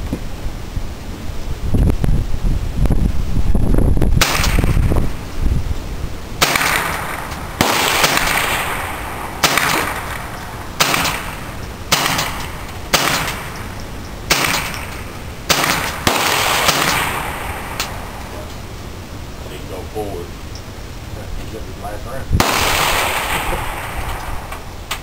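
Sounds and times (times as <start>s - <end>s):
rifle shots with echo: 4.2s - 4.9s, 6.4s - 13.7s, 14.3s - 18.2s, 22.4s - 24.6s.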